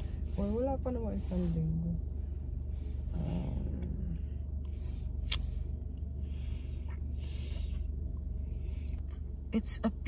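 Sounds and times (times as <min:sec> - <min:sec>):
car cabin hum: 0:00.0 - 0:10.0.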